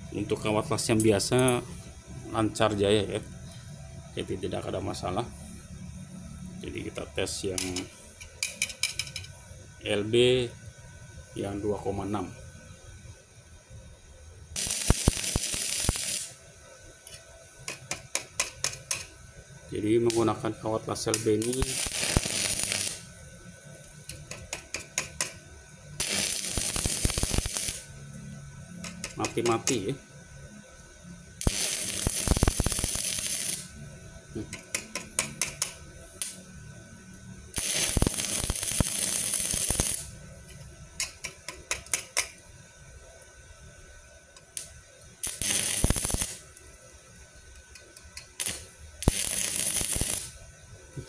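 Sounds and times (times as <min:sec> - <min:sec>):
welding arc hissing: 0:14.5 - 0:16.4, 0:17.0 - 0:30.0, 0:31.3 - 0:36.6, 0:37.5 - 0:40.2, 0:44.4 - 0:51.0
welding rod clicking on plate: 0:14.6 - 0:16.3, 0:17.1 - 0:19.1, 0:21.1 - 0:23.0, 0:24.1 - 0:25.4, 0:26.0 - 0:27.8, 0:28.8 - 0:29.8, 0:34.5 - 0:36.4, 0:37.6 - 0:40.1, 0:41.0 - 0:42.4, 0:44.4 - 0:46.4, 0:47.6 - 0:50.3.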